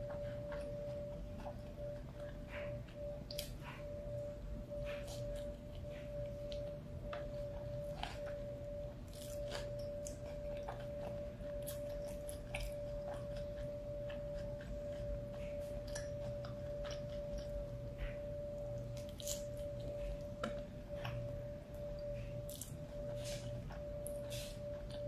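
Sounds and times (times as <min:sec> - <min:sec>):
person chewing food: 0:00.0 - 0:25.0
steady humming tone: 0:00.0 - 0:25.0
small crunches: 0:04.9 - 0:17.5.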